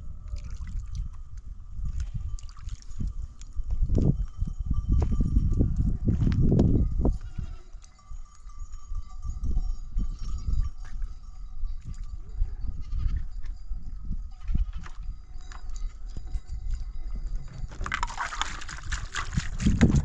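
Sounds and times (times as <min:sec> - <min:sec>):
livestock bleating: 0:07.1 - 0:07.8, 0:12.5 - 0:13.4, 0:14.3 - 0:15.0.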